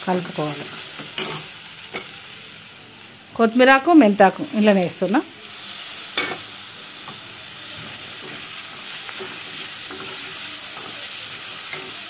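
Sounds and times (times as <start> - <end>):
vegetables sizzling in oil: 0.0 - 12.0
steel spoon stirring: 8.1 - 12.0.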